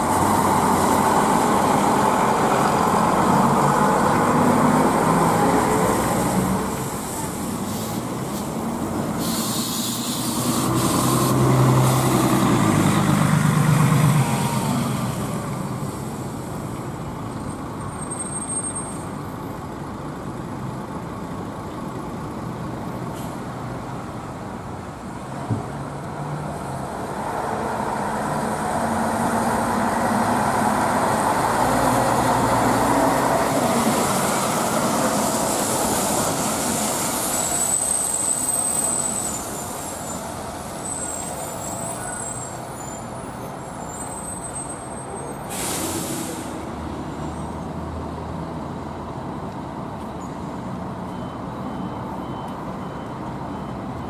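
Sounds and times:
diesel bus engines: 0.0s - 54.0s
brief high squeal: 37.0s - 46.5s.

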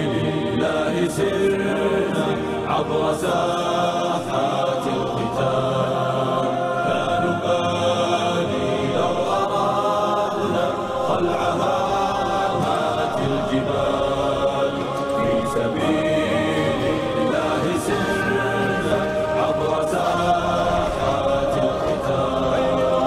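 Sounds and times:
choir singing: 0.0s - 23.0s.

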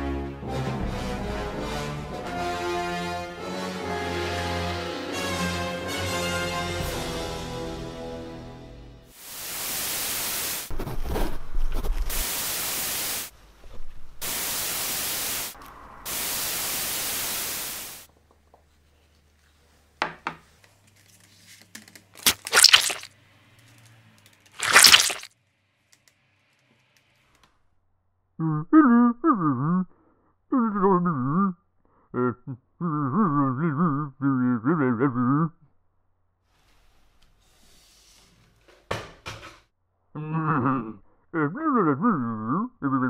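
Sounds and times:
static-like hiss: 9.2s - 10.8s, 11.8s - 13.4s, 14.2s - 18.1s
short sharp noises: 22.2s - 23.1s, 24.6s - 25.3s.

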